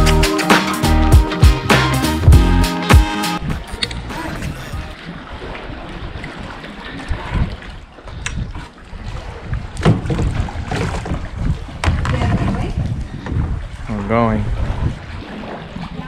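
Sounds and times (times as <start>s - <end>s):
wind rumbling on microphone: 3.4s - 16.0s
paddle strokes in water: 4.4s - 16.0s
paddle knocks: 9.7s - 13.5s.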